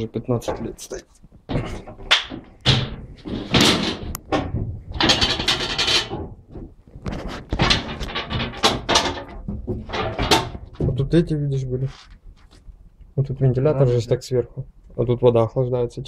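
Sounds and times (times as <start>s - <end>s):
people scraping and knocking: 0.0s - 12.7s.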